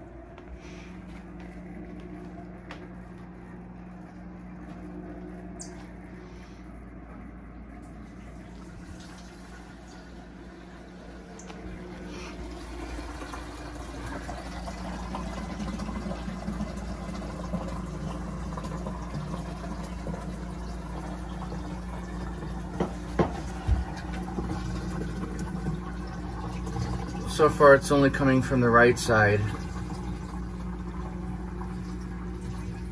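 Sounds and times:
water pouring and splashing: 7.8 - 32.9.

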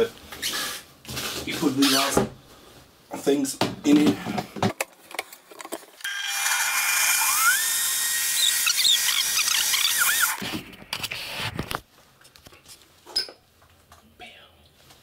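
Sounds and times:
blender motor whine: 6.0 - 10.4.

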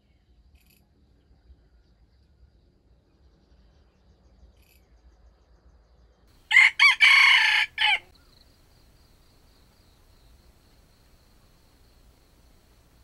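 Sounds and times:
rooster crowing: 6.5 - 8.1.

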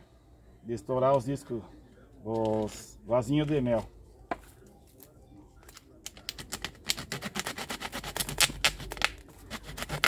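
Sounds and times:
plastic bottle being cut: 6.5 - 10.0.

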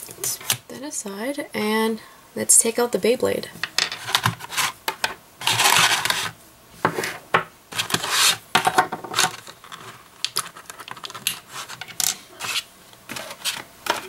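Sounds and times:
plastic blister tray crinkling: 7.7 - 14.0.

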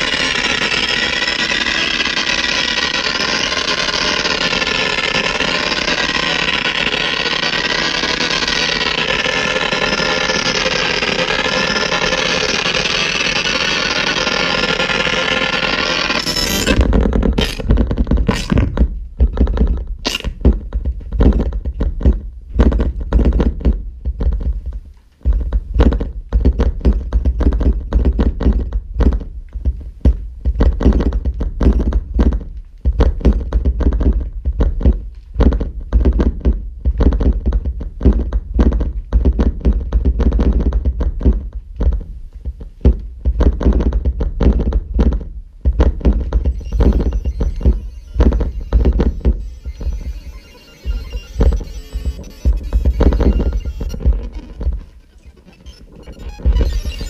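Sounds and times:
electronic sharp clicks: 0.0 - 20.6, 45.8 - 57.0
electronic low thuds: 16.4 - 57.0.

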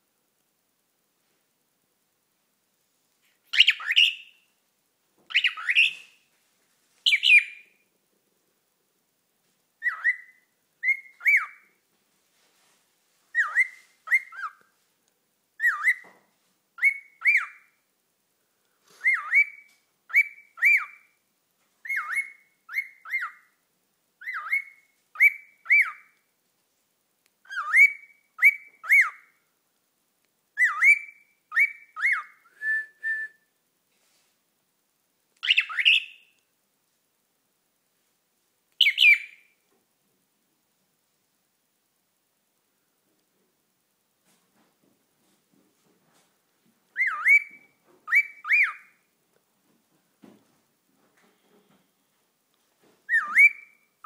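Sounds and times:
cockatiel calling: 3.5 - 4.4, 5.3 - 6.2, 7.0 - 7.8, 9.8 - 11.7, 13.3 - 14.6, 15.6 - 16.1, 16.8 - 17.8, 19.0 - 21.2, 21.8 - 23.6, 24.2 - 26.2, 27.4 - 29.3, 30.6 - 32.5, 35.4 - 36.4, 38.8 - 39.6, 46.9 - 49.1, 53.1 - 53.9
cockatiel whistled chirps: 3.5 - 4.4, 5.3 - 6.2, 7.1 - 7.8, 9.8 - 11.7, 13.3 - 14.6, 15.6 - 16.1, 16.8 - 17.8, 19.0 - 21.2, 21.8 - 23.6, 24.2 - 26.2, 27.4 - 29.4, 30.6 - 33.5, 35.4 - 36.4, 38.8 - 39.6, 46.9 - 49.1, 53.1 - 54.0.

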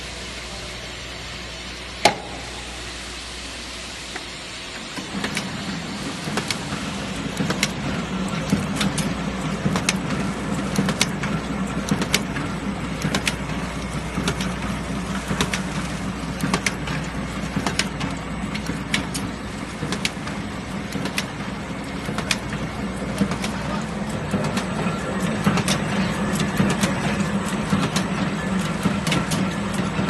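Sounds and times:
sharp mechanical click: 5.2 - 5.5, 10.8 - 11.3.

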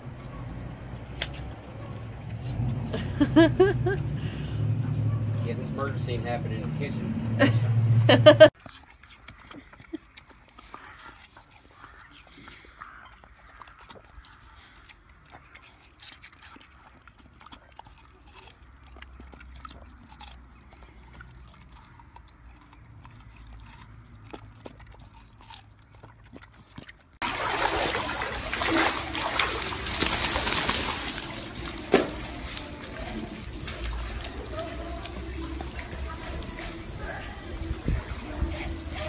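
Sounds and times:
dog chewing watermelon: 4.9 - 6.9, 8.5 - 39.0
dog splashing in pool water: 27.2 - 39.0.

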